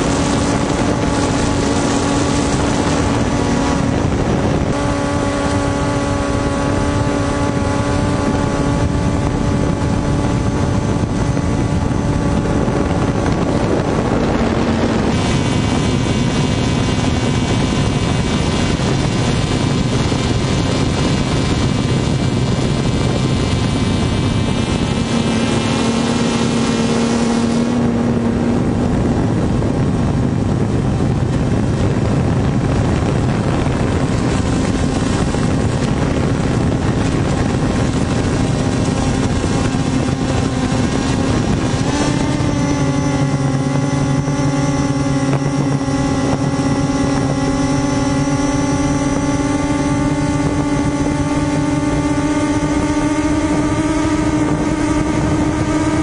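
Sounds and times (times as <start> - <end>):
drone propellers whirring: 0.0 - 56.0.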